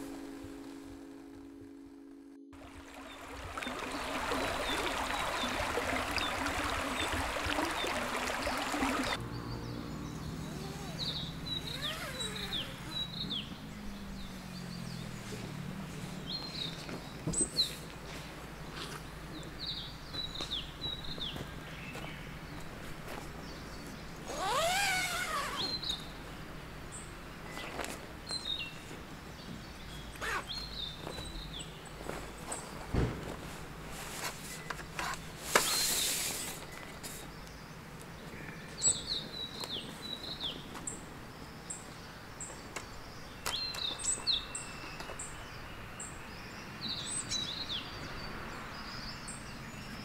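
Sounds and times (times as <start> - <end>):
bird chirping: 2.6 - 15.5.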